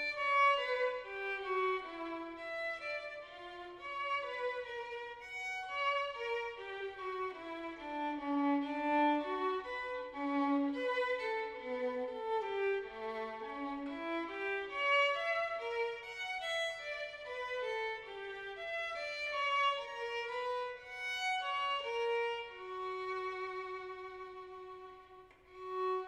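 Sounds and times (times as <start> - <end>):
violin playing slow melody: 0.0 - 26.0.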